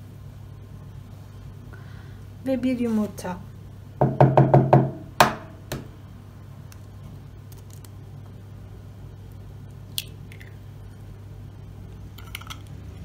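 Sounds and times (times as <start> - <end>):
eggshell crackling: 6.6 - 8.2, 9.2 - 11.0, 12.0 - 13.0
egg cracking: 6.7 - 8.1, 9.3 - 10.6, 12.1 - 13.0.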